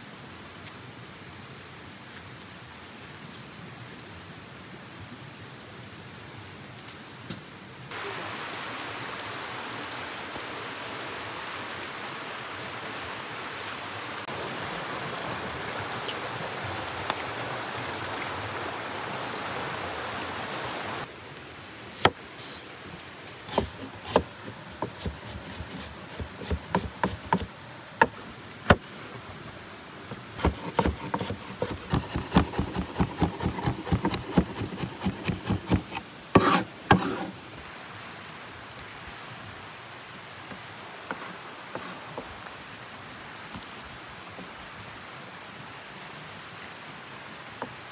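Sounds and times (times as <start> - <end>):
stream running over rocks: 0.0 - 47.9
knife chopping on wooden board: 23.5 - 28.8, 30.4 - 37.3.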